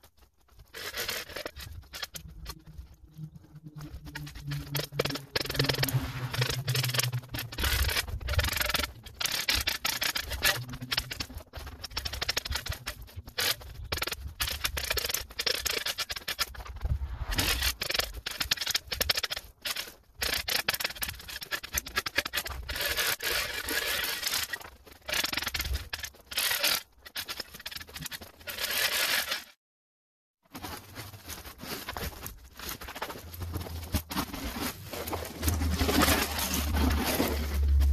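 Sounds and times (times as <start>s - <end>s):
shovel scraping hard snow: 16.8s - 17.9s.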